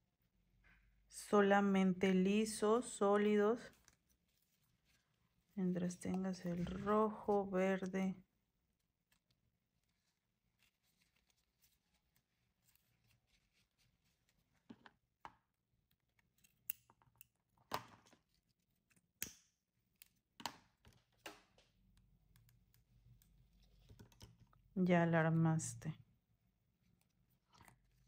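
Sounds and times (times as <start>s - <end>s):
faint handling of ribbon and clip: 8.8s - 15.2s.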